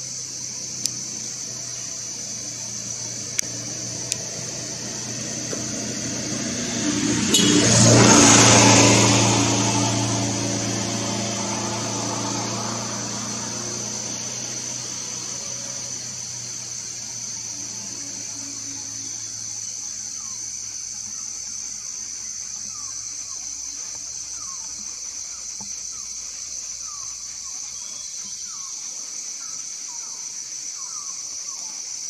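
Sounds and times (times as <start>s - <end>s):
high-pitched buzz: 2.4s - 16.1s.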